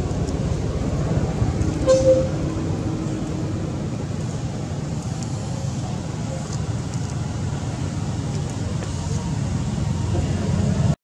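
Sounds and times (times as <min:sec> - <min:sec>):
low rumbling background noise: 0:00.0 - 0:11.0
brief high tone: 0:01.8 - 0:02.4.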